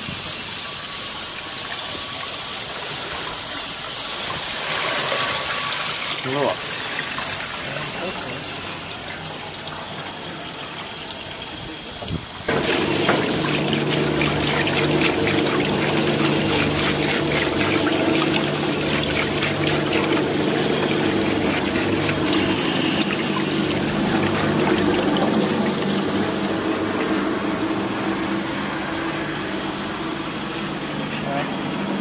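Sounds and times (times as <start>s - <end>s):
washing machine churning water: 0.0s - 32.0s
water splashing and pouring: 0.1s - 31.0s
motor hum: 12.4s - 32.0s.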